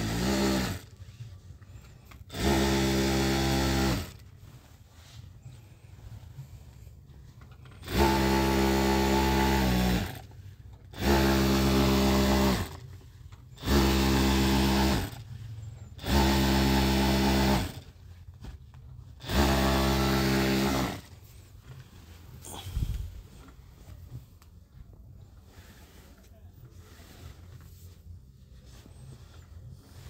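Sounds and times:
sewing machine stitching: 0.0s - 0.9s, 2.1s - 4.2s, 7.7s - 12.9s, 13.6s - 15.3s, 15.9s - 18.0s, 19.2s - 21.1s.

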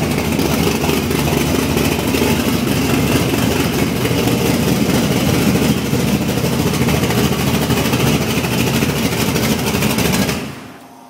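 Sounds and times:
vee eight engine idling loudly: 0.0s - 10.8s.

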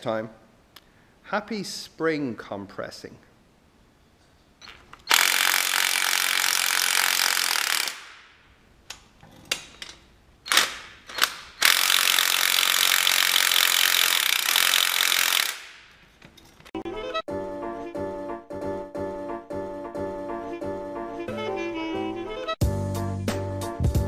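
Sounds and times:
impact gun rattling: 4.6s - 8.4s, 9.5s - 16.7s
music: 16.8s - 24.0s.

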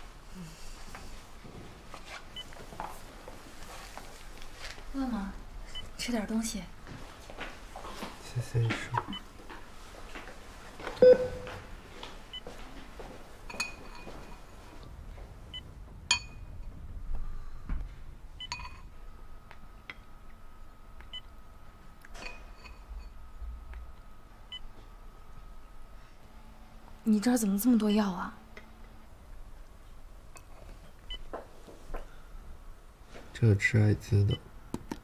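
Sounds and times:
spoon clinking ceramic bowls: 13.5s - 14.5s.

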